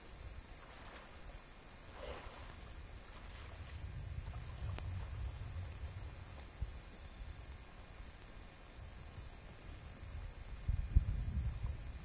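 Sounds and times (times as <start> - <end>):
steady background hiss: 0.0 - 12.0
low rumble: 3.4 - 7.4.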